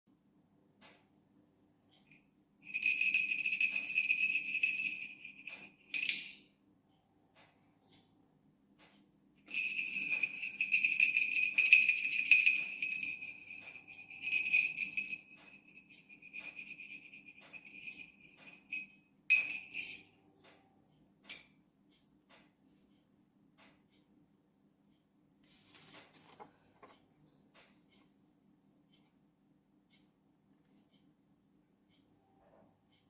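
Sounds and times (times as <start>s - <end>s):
bicycle bell jingling: 2.1s - 6.3s, 9.5s - 20.1s.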